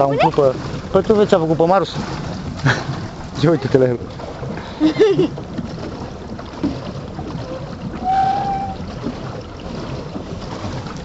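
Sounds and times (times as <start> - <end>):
paddle wheel churning water: 0.0 - 11.0
whistle-like tone: 8.0 - 8.8.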